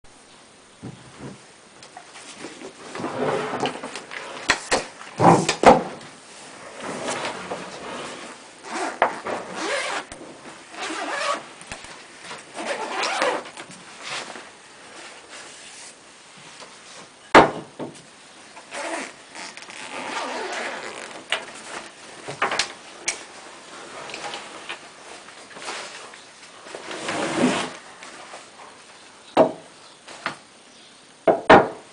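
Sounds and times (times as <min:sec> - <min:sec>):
fabric rustling: 0:06.4 - 0:16.0, 0:18.7 - 0:28.8
zipper rasping open: 0:06.8 - 0:11.5, 0:12.6 - 0:13.5, 0:18.7 - 0:21.8, 0:26.8 - 0:27.8.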